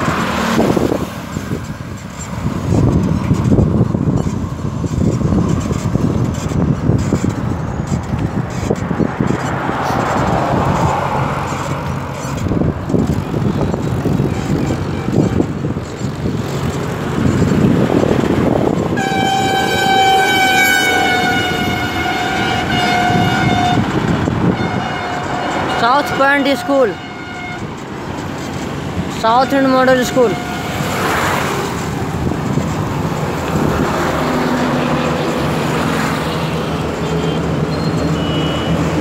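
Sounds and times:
vehicle rumble: 0:00.0 - 0:39.0
wind buffeting microphone: 0:00.0 - 0:39.0
vehicle horn long blast: 0:18.9 - 0:27.8, 0:29.2 - 0:31.0.

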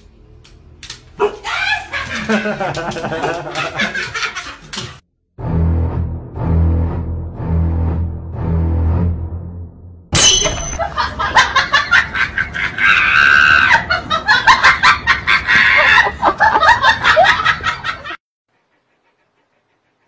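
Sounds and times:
person shrieking and laughing: 0:01.4 - 0:02.6, 0:12.5 - 0:14.0, 0:15.3 - 0:16.4.

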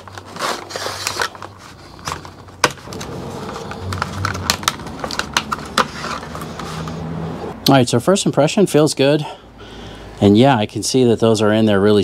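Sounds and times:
plastic packaging clicks and clacks: 0:00.0 - 0:06.7.

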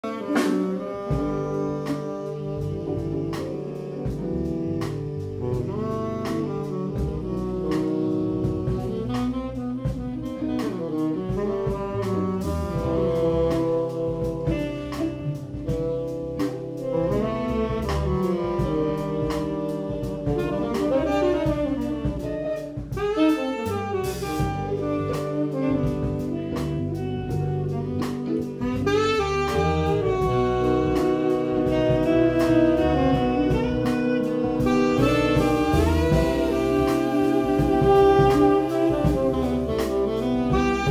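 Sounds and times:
drum kit: 0:00.0 - 0:40.9
saxophones playing together: 0:00.0 - 0:40.9.

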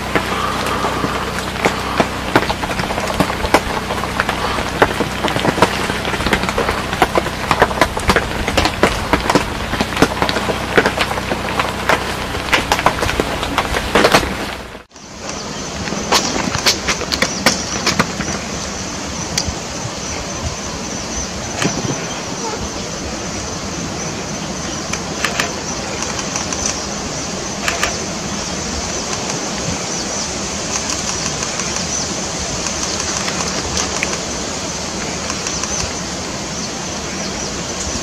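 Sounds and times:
steady background hiss: 0:00.0 - 0:38.0
sharp clicks: 0:24.9 - 0:26.9, 0:27.6 - 0:28.1, 0:30.7 - 0:34.3, 0:35.2 - 0:36.0.

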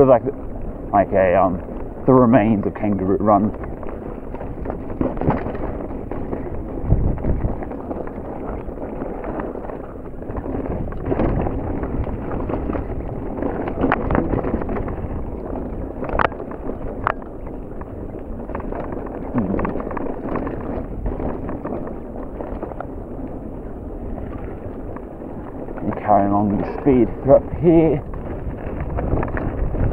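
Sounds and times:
bike tyres rumbling over rocks: 0:00.0 - 0:29.9
wind on microphone: 0:00.0 - 0:29.9.

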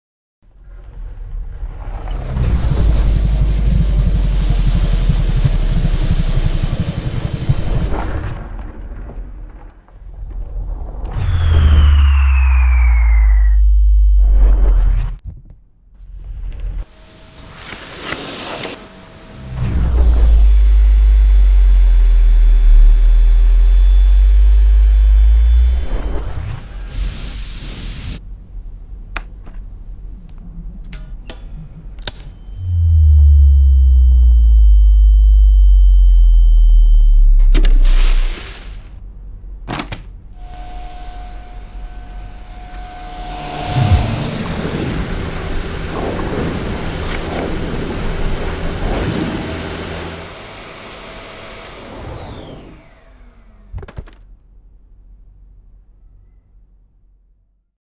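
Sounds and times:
vacuum cleaner running: 0:02.2 - 0:08.2, 0:16.8 - 0:28.2, 0:40.4 - 0:53.7
loud deep hum: 0:10.6 - 0:15.2, 0:19.0 - 0:26.2, 0:32.6 - 0:38.3, 0:40.4 - 0:50.9.

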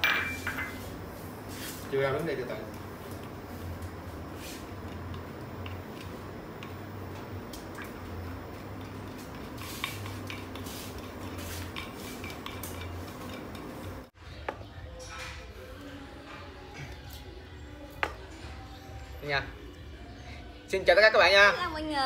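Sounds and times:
spoon scraping and clinking in mortar: 0:09.2 - 0:14.1.

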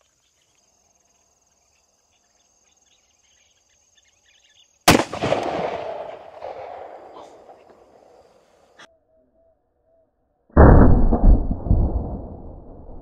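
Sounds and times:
revolver gunshot with echo: 0:04.9 - 0:08.1.

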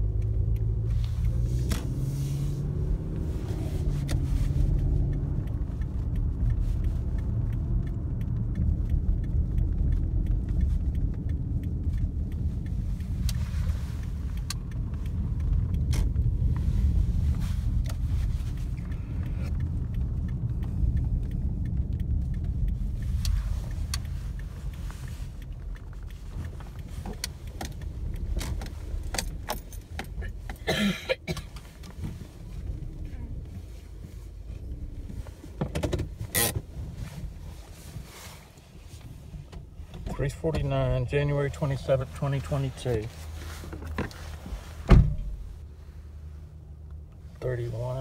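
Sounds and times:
car engine and road rumble: 0:00.0 - 0:48.0
clicking and jingling rattles: 0:26.2 - 0:30.6.

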